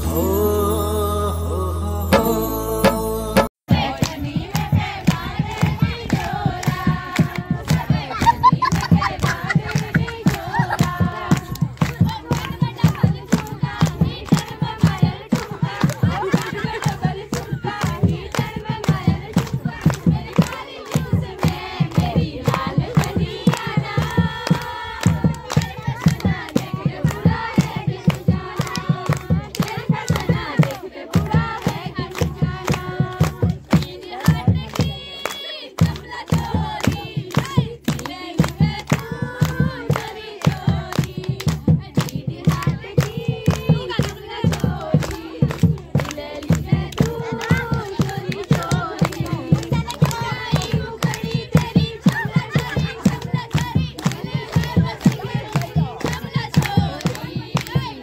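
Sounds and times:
women singing folk song: 0.0 - 58.0
rhythmic hand-clapping: 2.2 - 58.0.

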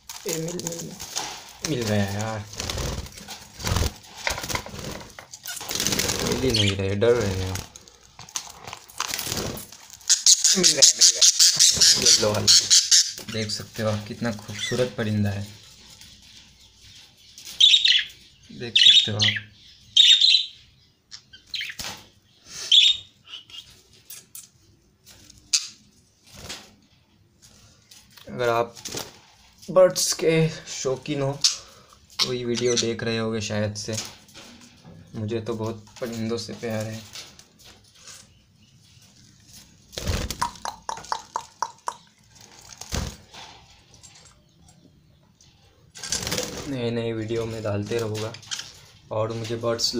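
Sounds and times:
budgerigar chirping: 10.1 - 13.2, 17.6 - 18.1, 18.8 - 20.6.

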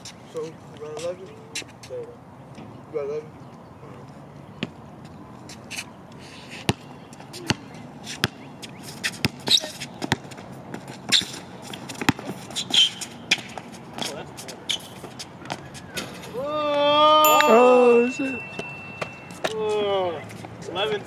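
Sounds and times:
sneaker squeaks and scuffs: 4.6 - 16.3, 18.1 - 20.8
basketball bouncing on hard court: 9.2 - 10.4, 12.0 - 12.4.

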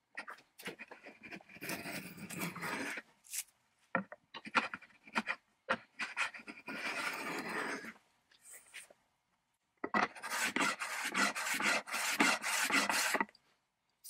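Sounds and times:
hand tool scraping wood: 4.4 - 7.9, 10.0 - 13.3.

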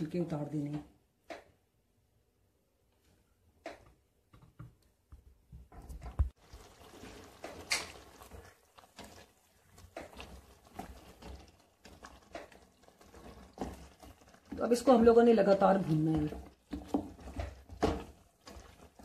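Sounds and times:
wet stirring: 5.8 - 19.0
spatula scraping a pot: 6.6 - 19.0.

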